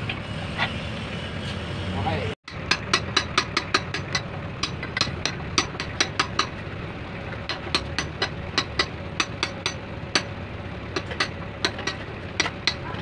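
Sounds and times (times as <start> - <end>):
low engine hum: 0.0 - 13.0
hammer tapping on metal punch: 2.5 - 6.6, 7.4 - 10.3, 10.9 - 13.0.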